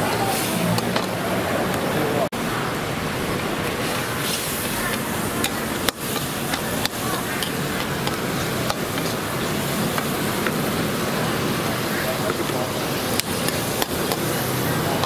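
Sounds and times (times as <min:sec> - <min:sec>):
food sizzling: 0:02.5 - 0:15.0
cooking utensils clicking: 0:03.9 - 0:10.7, 0:12.2 - 0:15.0.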